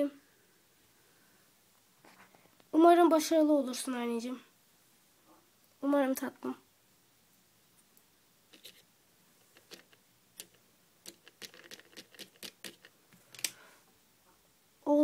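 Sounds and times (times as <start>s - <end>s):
toy fork tapping hazelnuts on plate: 9.6s - 12.9s.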